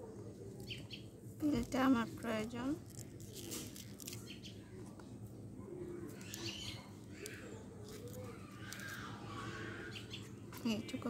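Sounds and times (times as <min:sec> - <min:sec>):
birds calling and chirping: 0:00.6 - 0:01.8, 0:04.0 - 0:11.0.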